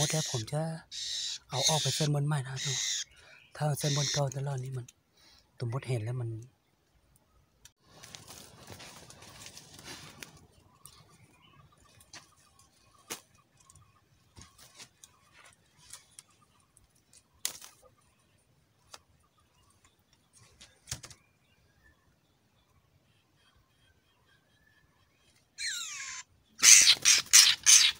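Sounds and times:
dry leaves rustling underfoot: 7.8s - 11.1s, 14.4s - 17.9s.

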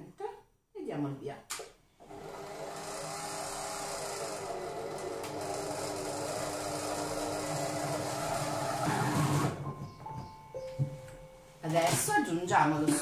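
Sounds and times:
food processor motor whirring: 2.0s - 9.6s.

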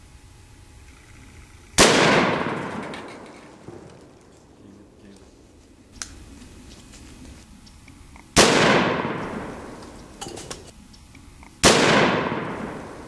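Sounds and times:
loud echoing gunshots: 1.8s - 4.2s, 8.4s - 9.8s, 11.6s - 13.0s.

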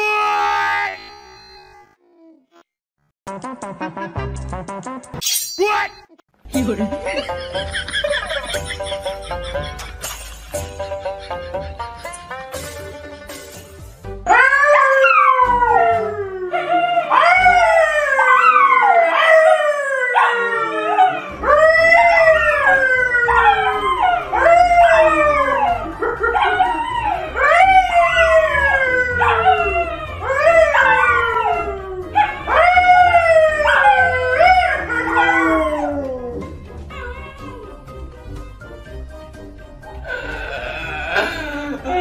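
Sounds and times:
man howling: 14.3s - 36.4s, 40.1s - 42.0s
dogs howling: 14.3s - 37.8s.

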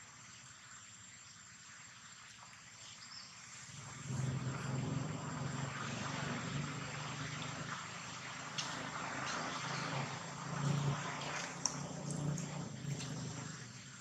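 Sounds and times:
faint outdoor background: 0.0s - 14.0s
motor engine humming: 3.7s - 14.0s.

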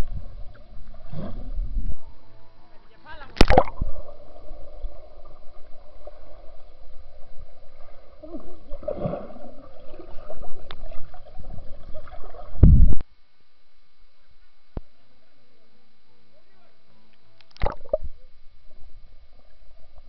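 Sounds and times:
muffled underwater bubbling and sloshing: 0.0s - 2.6s, 3.4s - 13.0s, 17.5s - 20.0s.

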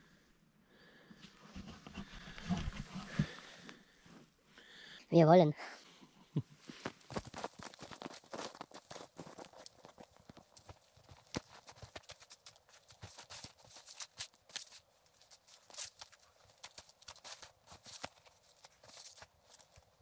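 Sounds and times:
trekking poles planted in snow: 0.8s - 4.9s, 5.6s - 20.0s
footsteps crunching in snow: 6.7s - 20.0s.

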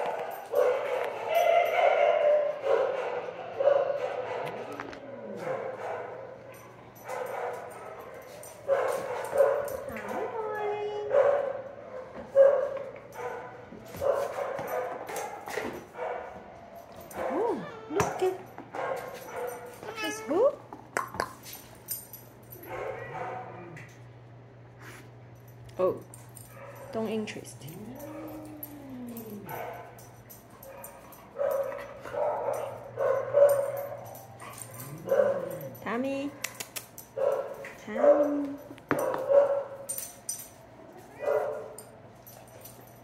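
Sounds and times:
dog barking: 0.0s - 10.2s, 11.1s - 16.4s, 18.8s - 19.7s, 22.6s - 23.7s, 29.4s - 39.9s, 41.2s - 42.0s.

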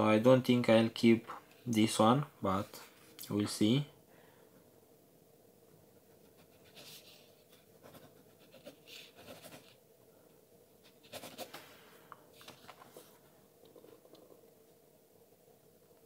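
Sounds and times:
pen scratching on paper: 6.0s - 9.8s, 10.8s - 11.6s.

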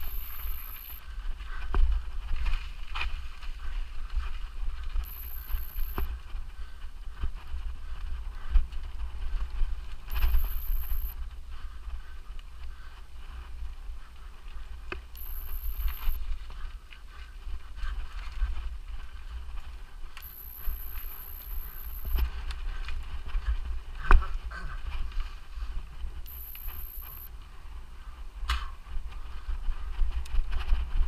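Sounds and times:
high thin whine: 0.0s - 1.0s, 5.0s - 6.1s, 10.1s - 11.2s, 15.2s - 16.2s, 20.2s - 22.2s, 26.3s - 27.3s.

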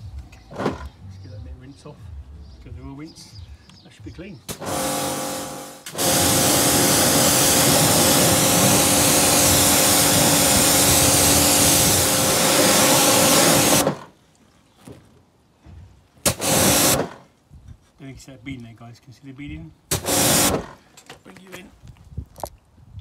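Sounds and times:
pressure washer spraying water: 4.5s - 14.1s, 16.2s - 17.2s, 19.9s - 20.8s.

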